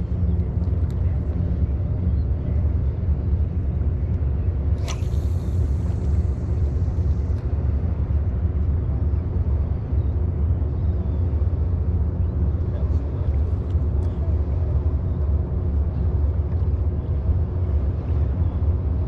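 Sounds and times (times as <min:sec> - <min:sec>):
steady low rumble: 0:00.0 - 0:19.0
fishing rod swish: 0:04.8 - 0:06.0
fishing line running off reel: 0:04.8 - 0:06.2.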